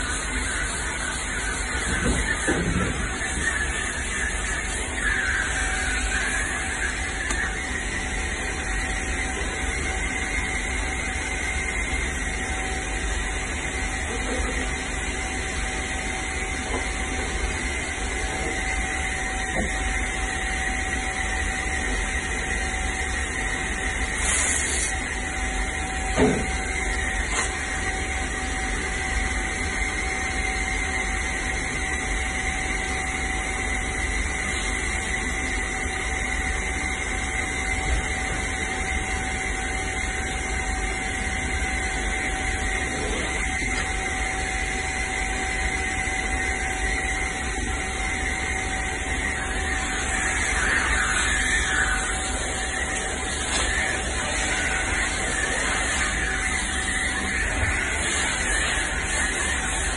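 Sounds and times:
machine drone with hiss: 0.0 - 59.9.

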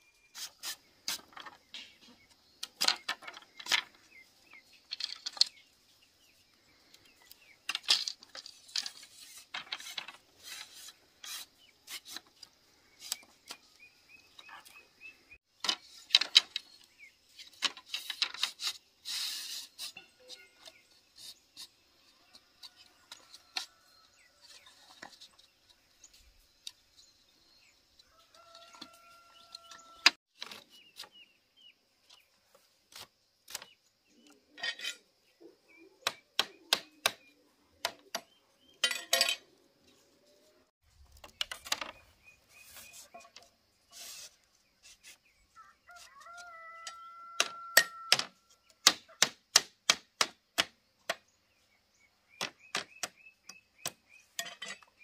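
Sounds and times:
rooster crowing: 28.1 - 30.2, 45.6 - 48.2
knocks and taps from hand work: 46.8 - 51.2, 52.4 - 53.2.

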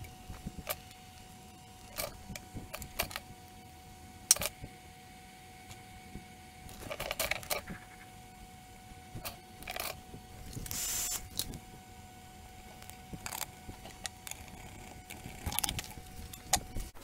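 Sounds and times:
hand tools and wire leads clicking: 9.2 - 11.6, 12.7 - 16.9.

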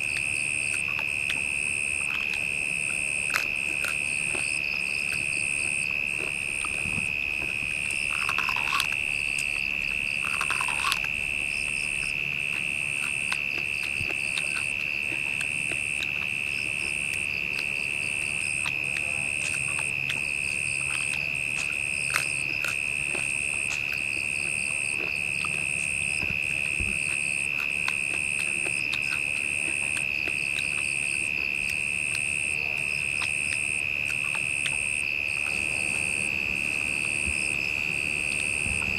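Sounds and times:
high pulsing insect chirp: 0.0 - 38.9
insects droning whine: 0.0 - 38.9.

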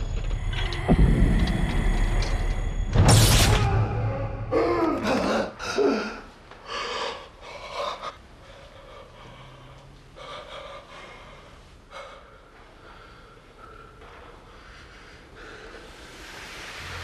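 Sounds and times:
man breathing heavily: 5.6 - 17.0.

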